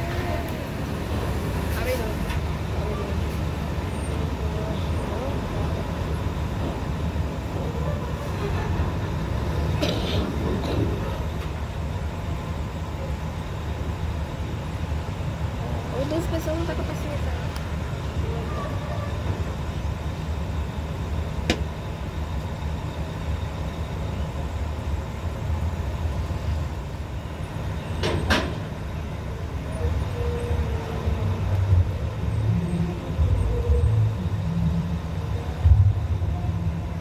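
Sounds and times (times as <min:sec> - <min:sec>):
heavy engines rumbling: 0:00.0 - 0:37.0.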